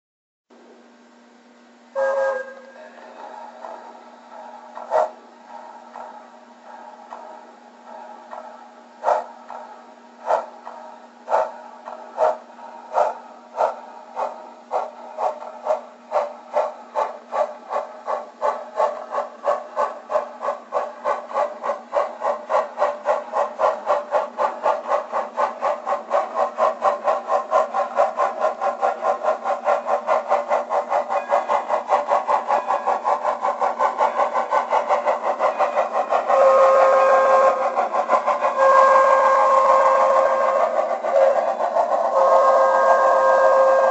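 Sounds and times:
steam locomotive chuffing: 1.8 - 43.9.

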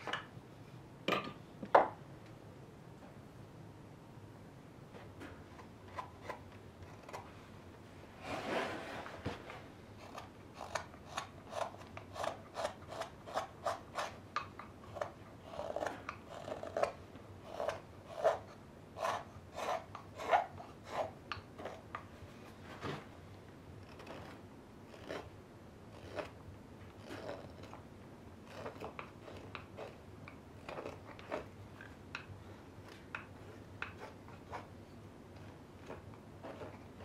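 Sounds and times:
knife scraping wood: 8.2 - 22.0, 23.8 - 25.3, 25.9 - 26.4, 27.0 - 27.8, 28.4 - 30.0, 30.6 - 31.5, 32.8 - 34.8, 35.4 - 37.0
knife shaving wood: 10.0 - 22.1, 23.8 - 27.8, 28.4 - 34.8, 35.4 - 37.0.

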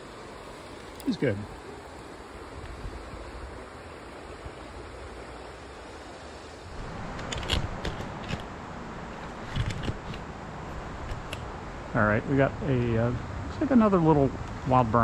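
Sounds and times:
stream flowing over rocks: 0.0 - 15.0.

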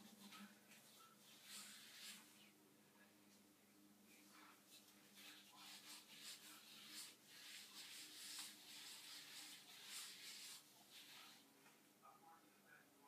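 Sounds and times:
gloved hands rubbing hair: 0.0 - 2.6, 4.5 - 11.4.

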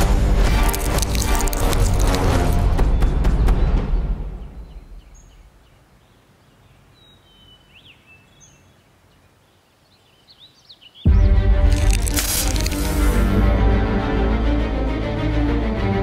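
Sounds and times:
music: 0.0 - 5.0, 11.1 - 16.0
faint outdoor ambience: 0.0 - 13.6.

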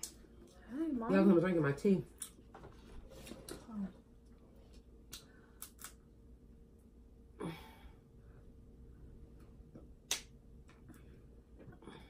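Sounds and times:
shells being peeled: 5.1 - 6.1.

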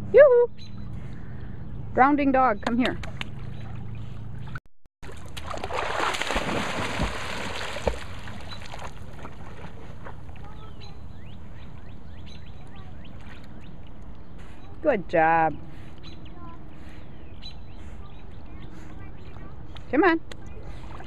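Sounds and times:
water gently lapping: 3.0 - 14.8, 20.5 - 21.0
water splashing from dog swimming: 5.0 - 10.7.

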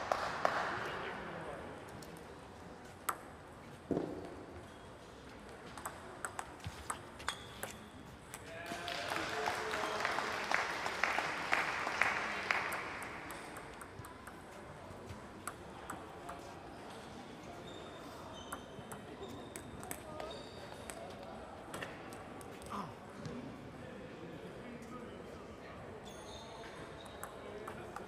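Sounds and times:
people clapping: 0.0 - 1.4, 8.5 - 14.0
table tennis balls clicking: 5.6 - 8.5, 12.7 - 16.5.

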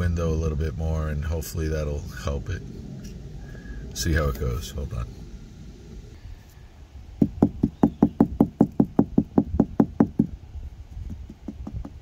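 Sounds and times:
tapping on windshield glass: 11.0 - 12.0.

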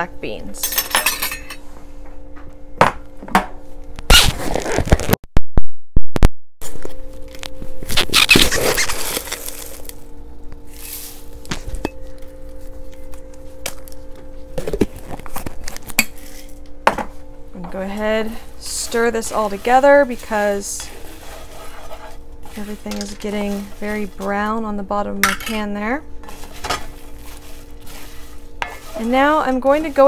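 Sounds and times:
low hum: 6.6 - 30.0.

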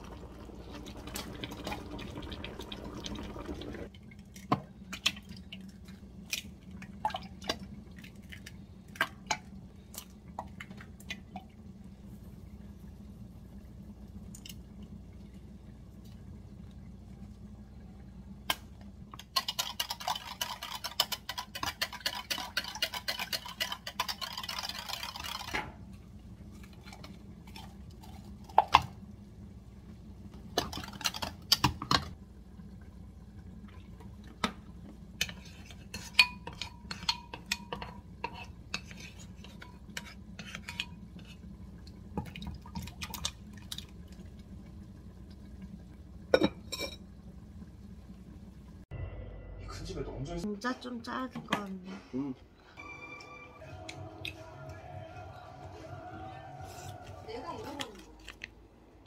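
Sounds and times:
eggs beaten in plastic jug: 19.1 - 25.6.

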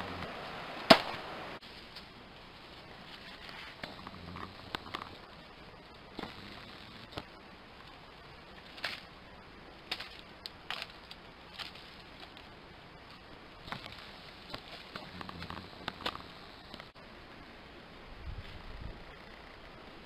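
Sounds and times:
faint steady hiss: 0.0 - 20.0
twigs and dry leaves snapping: 3.0 - 5.4, 6.2 - 9.2, 9.8 - 16.9.

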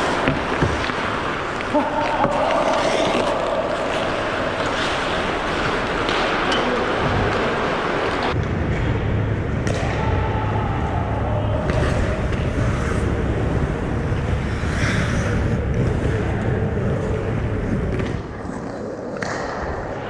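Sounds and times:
hockey sticks and puck knocking: 0.0 - 7.4
skates scraping ice: 0.0 - 8.4, 11.6 - 20.0
steady low hum: 5.2 - 19.2.

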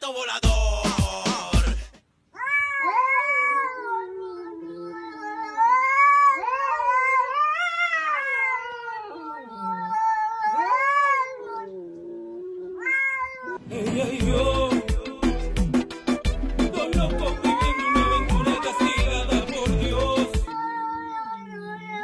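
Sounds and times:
music with heavy beat: 0.4 - 2.0, 13.8 - 20.5
cat yowling: 2.4 - 13.6, 17.2 - 19.1, 20.5 - 22.0.

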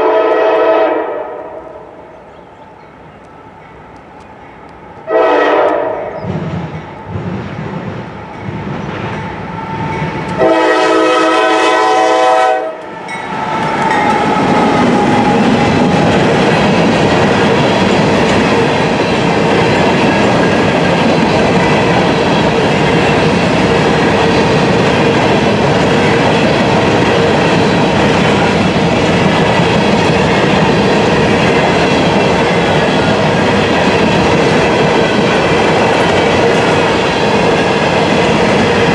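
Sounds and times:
locomotive air horn blasts: 0.0 - 1.9, 5.1 - 6.2, 10.4 - 12.9
freight cars rolling clickety-clack: 5.7 - 10.5, 13.2 - 38.9.

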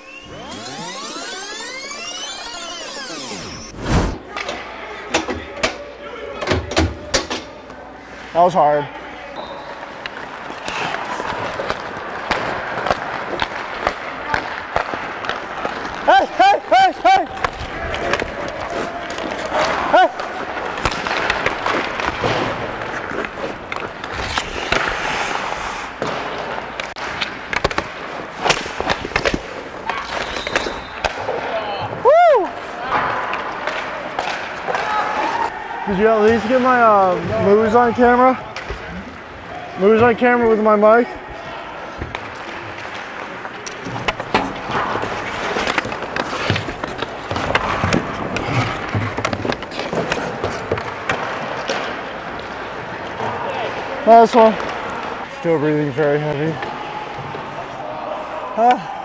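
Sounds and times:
skates scraping on ice: 9.7 - 31.5, 41.7 - 55.2
hockey sticks and pucks cracking: 9.8 - 32.0, 32.6 - 35.5, 41.8 - 57.3.

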